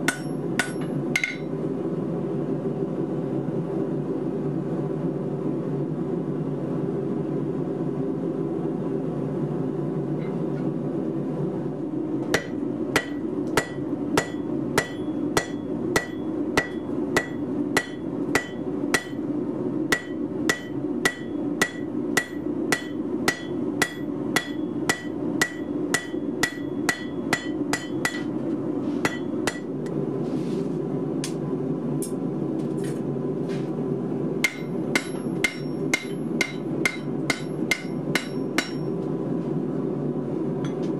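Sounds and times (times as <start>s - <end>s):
hammer striking steel on anvil: 0.0s - 1.6s, 12.3s - 19.3s, 19.9s - 28.4s, 29.0s - 29.9s, 34.4s - 39.0s.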